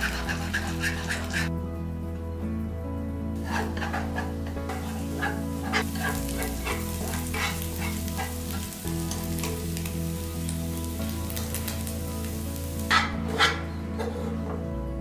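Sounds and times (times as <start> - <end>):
eggs sizzling in a frying pan: 0.0 - 1.5, 3.4 - 14.2
utensil scraping a pan: 0.0 - 1.5, 3.4 - 8.7, 12.8 - 14.6.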